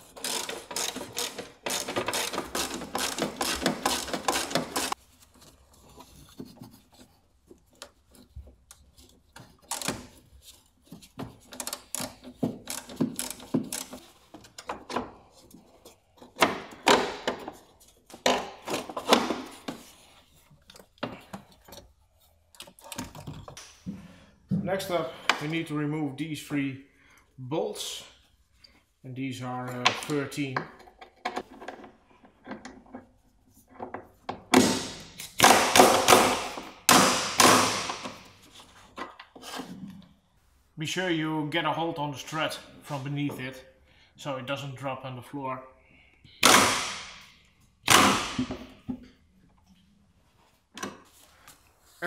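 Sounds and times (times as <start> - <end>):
tools clicking and knocking: 0.0 - 5.0, 6.0 - 19.8, 20.6 - 23.6, 29.7 - 38.3.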